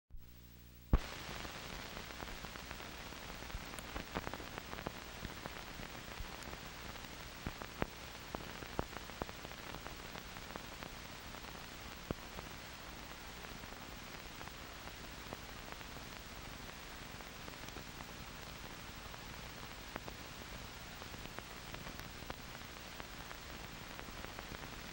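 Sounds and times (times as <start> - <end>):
film soundtrack hiss: 0.1 - 24.9
clicks and pops: 1.0 - 1.2.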